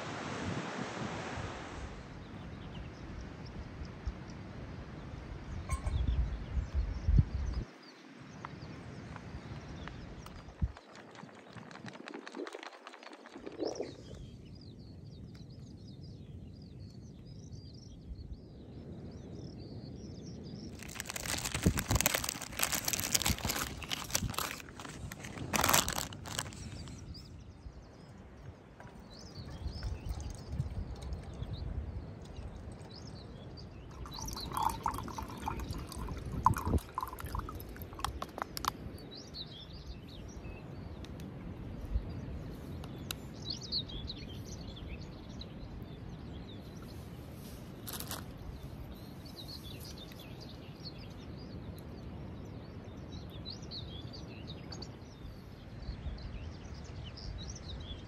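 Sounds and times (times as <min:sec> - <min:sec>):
wind rumble on microphone: 0:00.0 - 0:58.0
small birds chirping: 0:05.5 - 0:58.0
packaging crinkling and rustling: 0:20.8 - 0:27.0, 0:47.8 - 0:48.3.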